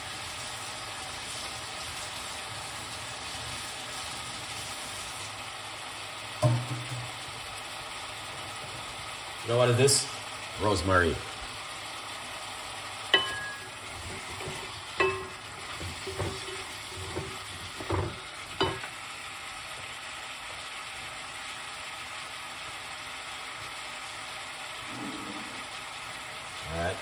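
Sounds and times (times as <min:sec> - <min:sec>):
vegetables sizzling in a pot: 0:00.0 - 0:27.0
wooden spoon knocking pot: 0:06.4 - 0:07.1, 0:13.1 - 0:13.7, 0:14.4 - 0:18.9.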